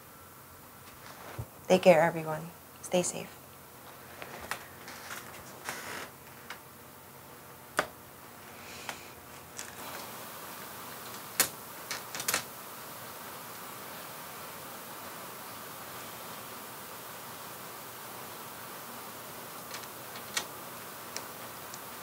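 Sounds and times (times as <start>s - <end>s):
faint steady hiss: 0.0s - 22.0s
small objects clicking on a desk: 11.1s - 12.5s.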